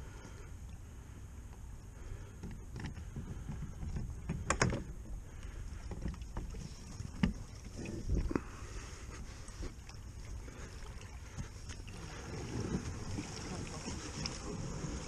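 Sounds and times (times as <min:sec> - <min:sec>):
low wash of water: 0:04.9 - 0:15.0.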